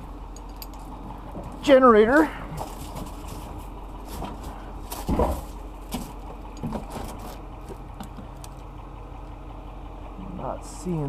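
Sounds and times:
vehicle engine idling: 0.0 - 11.0
dull thumps and knocks: 2.6 - 8.3.

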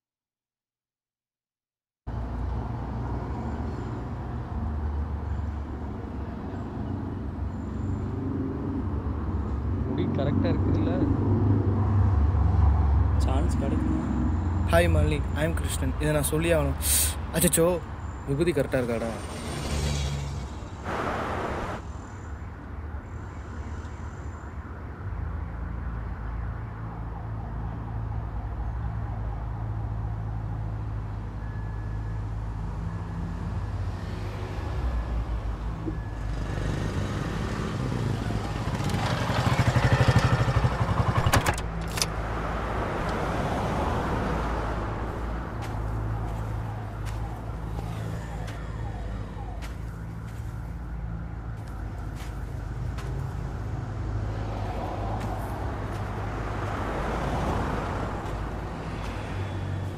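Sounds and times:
motorcycle passing by: 19.1 - 21.8, 36.2 - 41.3.

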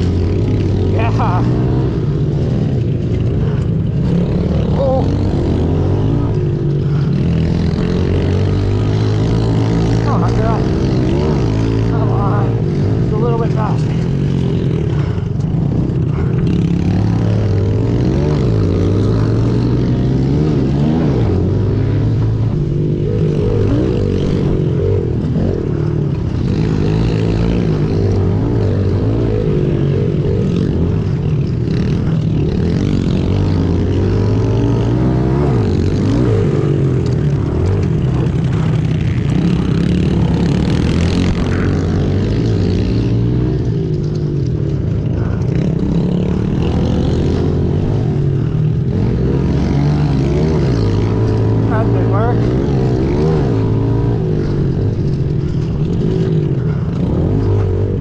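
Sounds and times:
pit bike engine revving: 0.0 - 58.0.

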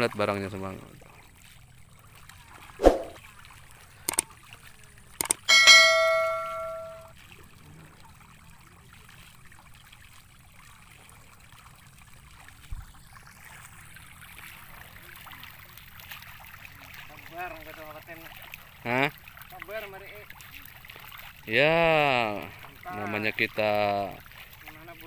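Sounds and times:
faint water noise: 0.0 - 25.0
mouse clicks: 5.2 - 5.5
bright bell ding: 5.4 - 7.1.

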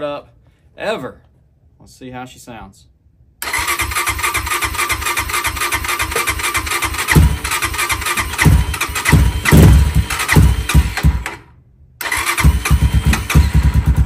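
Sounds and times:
dirt bike engine firing: 3.4 - 14.0
electric starter cranking: 3.4 - 14.0.

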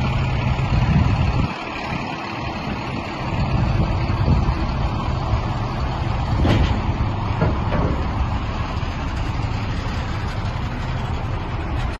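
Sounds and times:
diesel truck engine idling: 0.0 - 11.9.

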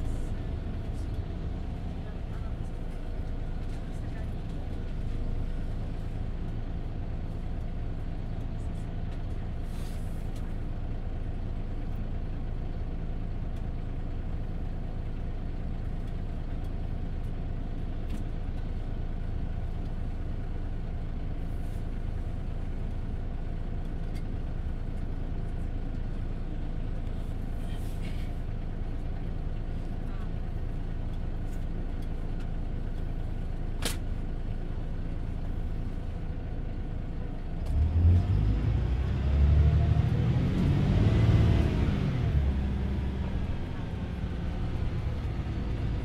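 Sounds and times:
bus diesel engine droning: 0.0 - 46.0
road and tyre noise: 0.0 - 46.0.

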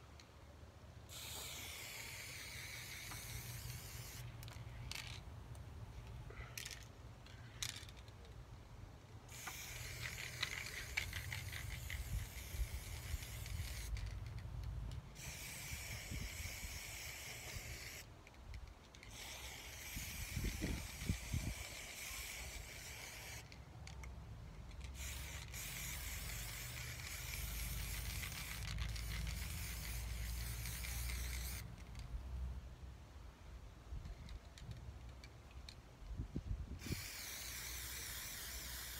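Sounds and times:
spray paint can hissing: 1.1 - 5.2, 9.3 - 18.1, 19.0 - 23.6, 24.7 - 32.0, 36.8 - 38.9.

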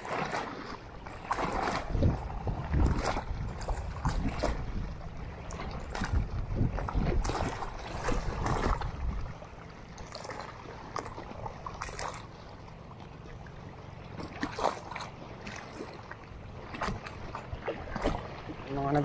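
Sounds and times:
short splashes or knocks: 0.0 - 4.8, 5.5 - 9.3, 14.1 - 18.7
wind rumble on microphone: 0.0 - 9.6, 16.4 - 19.0
water sloshing around boat: 0.0 - 19.0.

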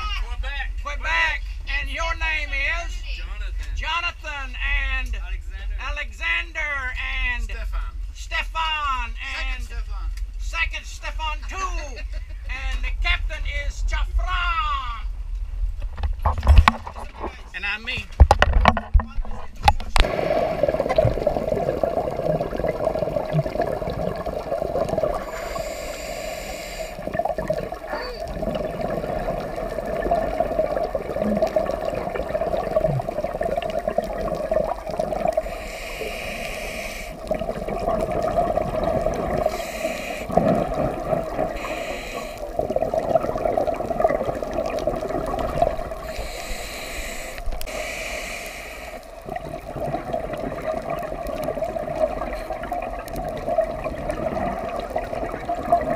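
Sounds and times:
steady hum: 4.8 - 55.9
bubbling and gurgling water: 15.9 - 17.5, 18.2 - 55.9
hissing regulator breaths: 25.1 - 27.2, 35.2 - 37.4, 39.3 - 42.7, 45.8 - 49.2.

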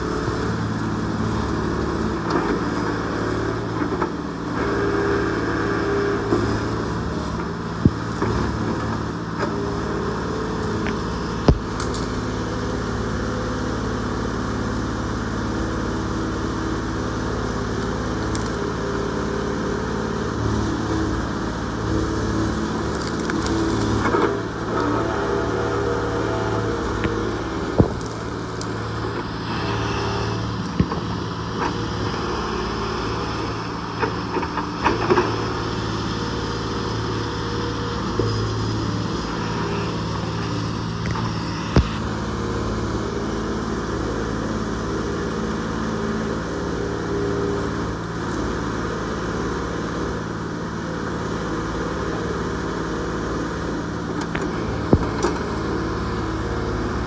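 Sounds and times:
excavator diesel engine running: 0.0 - 57.0
branches and roots cracking: 10.6 - 12.2, 17.7 - 18.7, 22.3 - 24.9, 26.7 - 29.2.

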